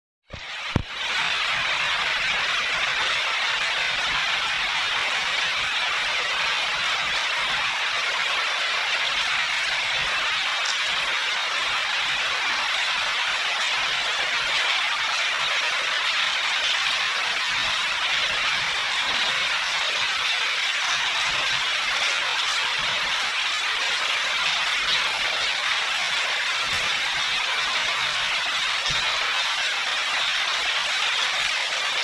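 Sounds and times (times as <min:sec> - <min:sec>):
heavy rain on brick paving: 0:00.3 - 0:32.0.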